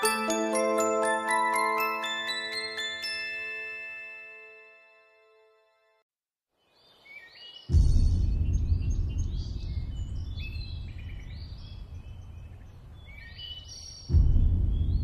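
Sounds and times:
loud low rumble: 7.7s - 13.1s, 14.1s - 15.0s
birds chirping and singing: 8.3s - 15.0s.

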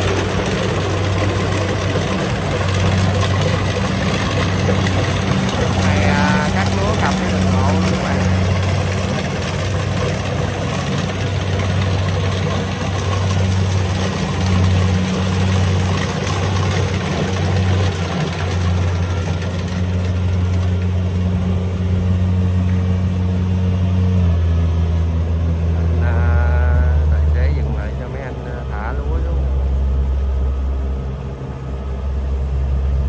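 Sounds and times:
combine harvester diesel engine: 0.0s - 33.0s.

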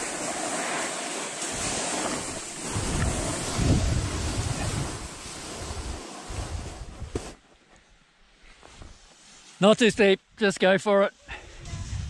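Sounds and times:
skis sliding over snow: 0.0s - 12.0s
wind buffeting microphone: 1.5s - 7.4s, 11.4s - 12.0s.

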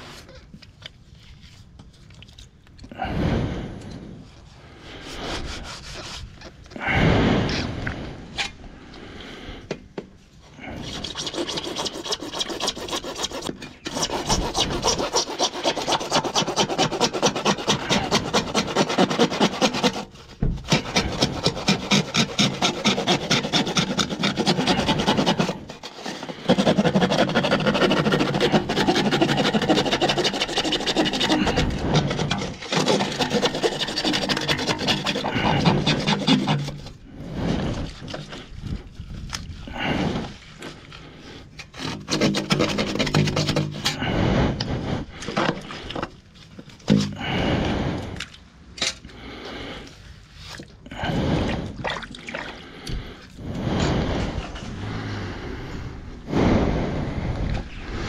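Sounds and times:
handling knocks and scrapes: 9.7s - 47.5s
hand saw rasping through pipe: 10.8s - 37.1s, 41.6s - 44.1s.

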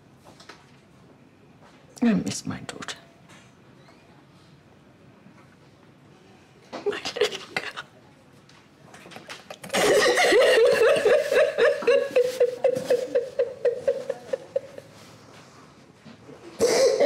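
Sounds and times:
woman sobbing: 9.7s - 15.0s.

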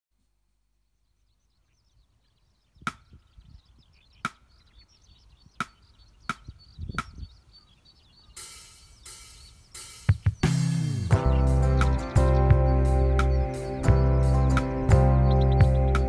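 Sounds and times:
skylark singing: 0.8s - 16.0s
band playing: 8.4s - 16.0s.

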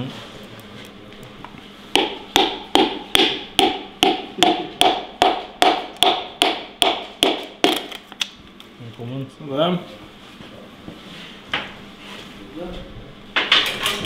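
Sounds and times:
hammer striking metal: 2.0s - 7.8s.

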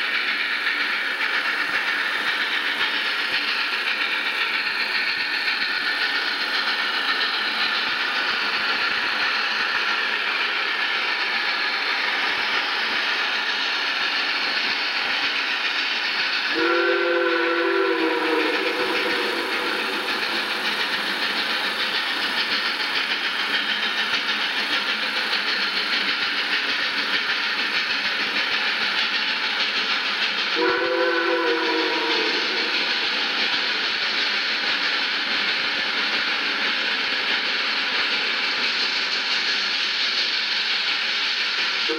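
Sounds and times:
steam locomotive exhaust: 0.0s - 41.9s
steam whistle chord: 16.5s - 20.0s, 30.6s - 32.7s.

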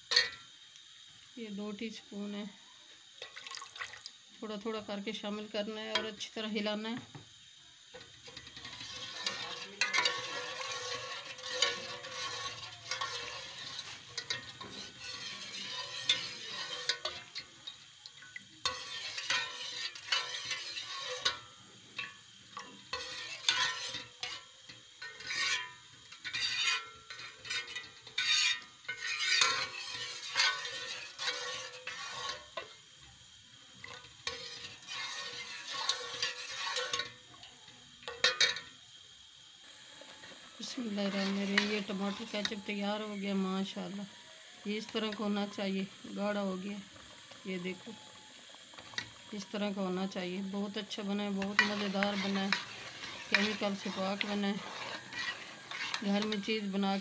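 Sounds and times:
ladle scraping metal pot: 0.1s - 0.4s, 7.9s - 32.8s, 33.8s - 37.3s, 38.0s - 38.7s, 40.0s - 45.6s, 47.0s - 57.0s.

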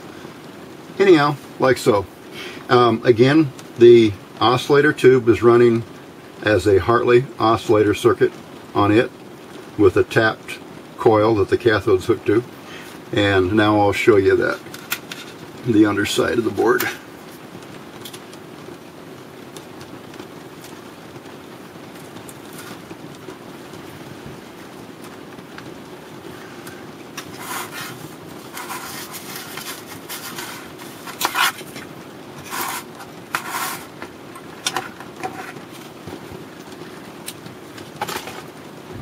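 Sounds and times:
scrapes and clatters of handling: 14.4s - 15.5s, 22.0s - 24.4s, 26.6s - 38.6s.

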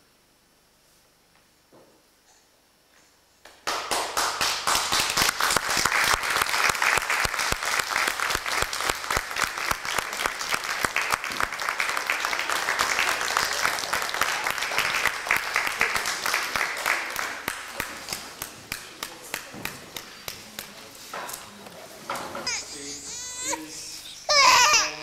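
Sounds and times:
audience applauding: 3.5s - 20.4s.

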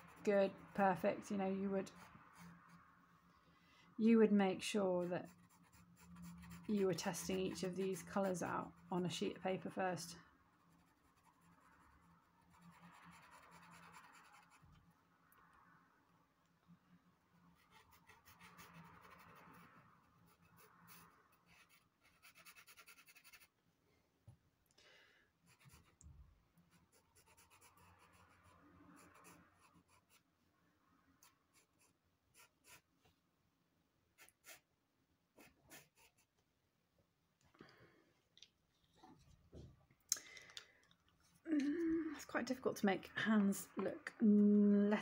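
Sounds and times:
pencil scratching on paper: 0.0s - 0.3s, 1.8s - 2.8s, 4.9s - 8.8s, 10.6s - 14.8s, 17.6s - 23.6s, 25.5s - 26.0s, 26.7s - 30.3s, 31.2s - 32.9s, 34.2s - 34.7s, 35.4s - 36.4s.

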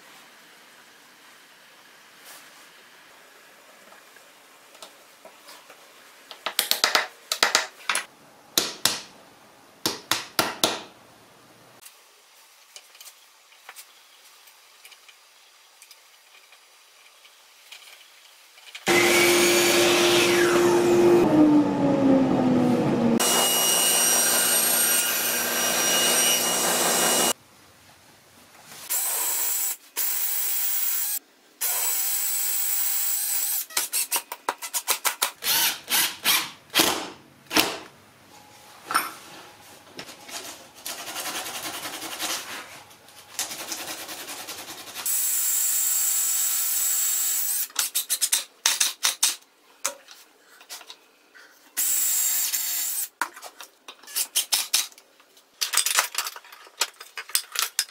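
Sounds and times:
table saw cutting: 18.9s - 27.4s
cordless drill bursts: 28.9s - 33.7s, 35.4s - 36.5s, 51.8s - 53.1s
wood and clamps clicking and knocking: 47.7s - 51.0s, 53.2s - 57.9s.

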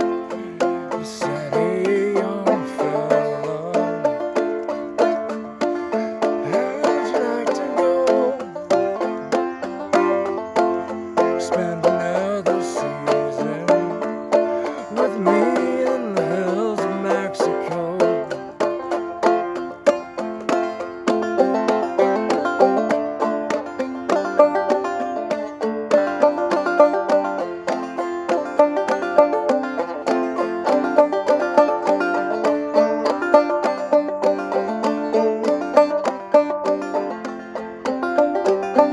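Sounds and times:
banjo plucking and strumming: 0.0s - 38.9s
man singing: 0.2s - 4.4s, 6.4s - 8.8s, 11.2s - 18.6s.

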